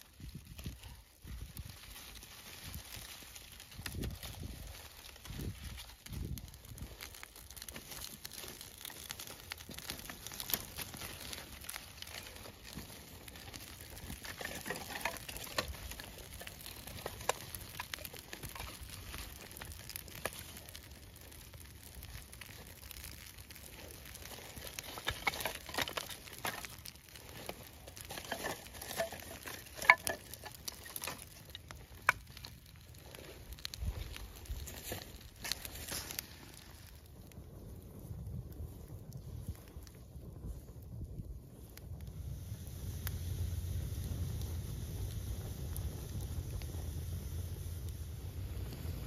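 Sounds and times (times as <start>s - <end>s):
twig fire crackling: 0.0s - 49.0s
kindling sticks rustling and clacking: 1.6s - 21.0s, 22.2s - 36.8s.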